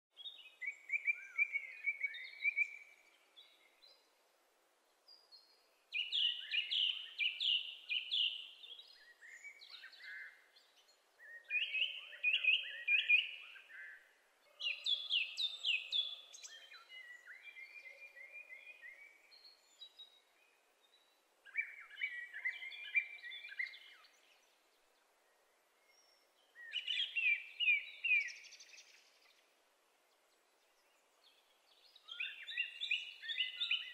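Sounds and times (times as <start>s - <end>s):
blackbird singing: 0.2s - 4.1s, 5.2s - 24.6s, 25.2s - 29.4s, 30.7s - 33.9s.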